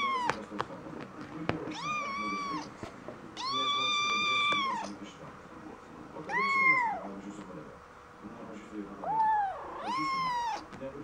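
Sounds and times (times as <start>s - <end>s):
kitten meowing: 0.0s - 0.4s, 1.7s - 2.7s, 3.4s - 4.9s, 6.3s - 7.1s, 9.0s - 10.7s.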